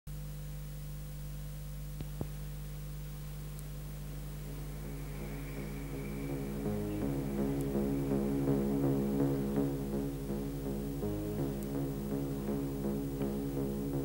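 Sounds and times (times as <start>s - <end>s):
mains hum and tape hiss: 0.1s - 14.0s
music: 3.9s - 14.0s.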